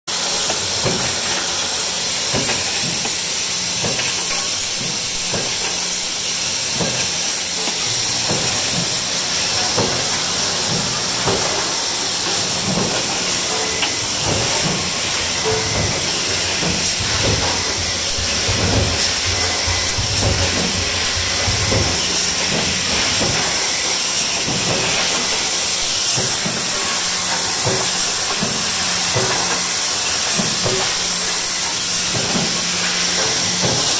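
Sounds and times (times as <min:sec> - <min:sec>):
stamping press hissing and humming: 0:00.1 - 0:33.9
sharp knocks and clicks: 0:15.4 - 0:23.6.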